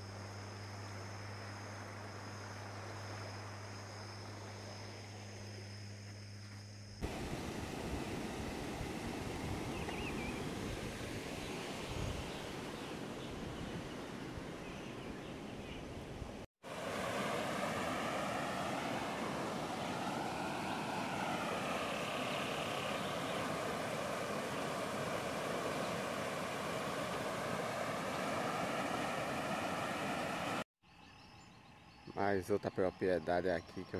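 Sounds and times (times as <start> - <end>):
river rushing in rapids: 7.0 - 11.8, 16.6 - 30.6.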